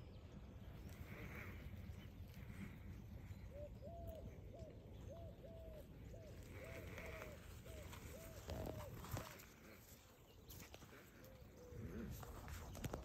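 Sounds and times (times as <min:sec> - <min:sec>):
faint animal calls: 0:00.8 - 0:10.0.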